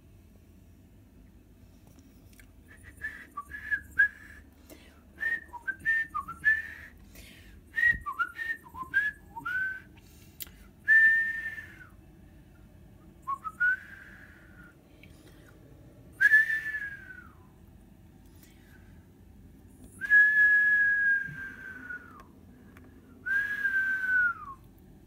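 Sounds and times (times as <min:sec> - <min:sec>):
person whistling a tune: 0:02.7 - 0:04.4, 0:05.2 - 0:06.9, 0:07.8 - 0:09.9, 0:10.9 - 0:12.0, 0:13.3 - 0:14.7, 0:16.2 - 0:17.4, 0:20.0 - 0:22.3, 0:23.2 - 0:24.6.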